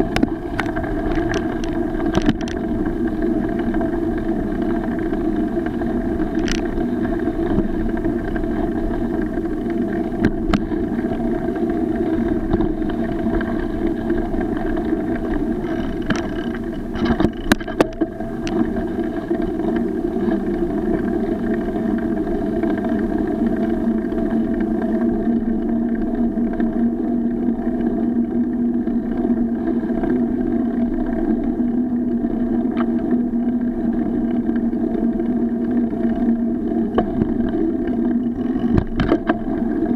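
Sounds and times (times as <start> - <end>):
bike rattle: 0.0 - 23.8
bicycle rolling on road: 0.0 - 39.9.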